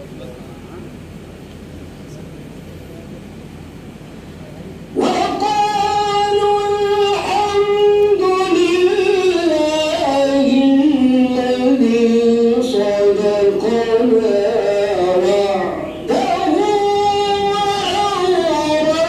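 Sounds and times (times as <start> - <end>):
man chanting into microphone: 5.0 - 19.0.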